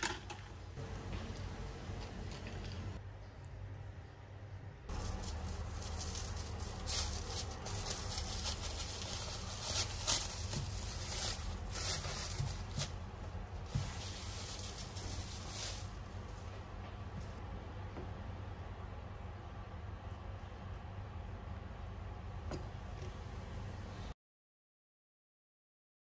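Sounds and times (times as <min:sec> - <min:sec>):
cling film crinkling: 0:04.9 - 0:16.5.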